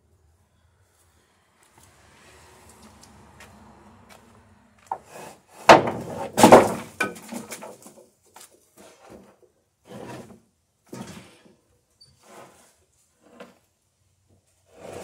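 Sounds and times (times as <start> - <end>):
board scraping on wood: 4.9 - 7.9, 8.8 - 11.4, 12.2 - 13.6, 14.6 - 15.0
wooden boards clattering: 4.9 - 8.1.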